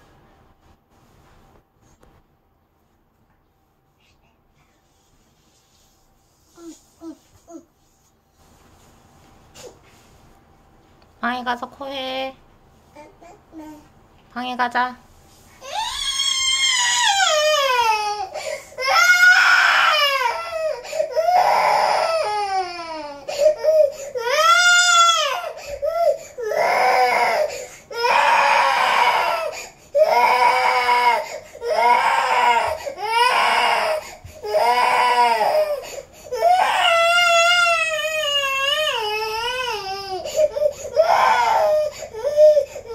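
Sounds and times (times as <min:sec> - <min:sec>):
toddler crying in long wails: 0:15.6 - 0:42.9.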